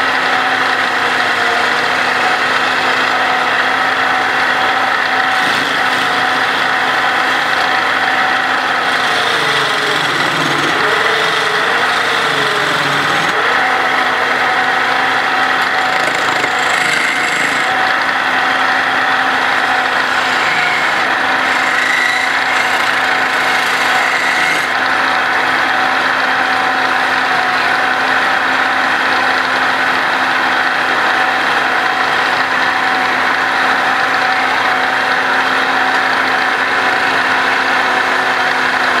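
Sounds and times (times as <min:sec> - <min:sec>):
wood lathe humming: 0:00.0 - 0:39.0
tool hissing cutting wood: 0:05.2 - 0:06.7, 0:08.7 - 0:13.5, 0:15.4 - 0:18.0, 0:19.1 - 0:24.8.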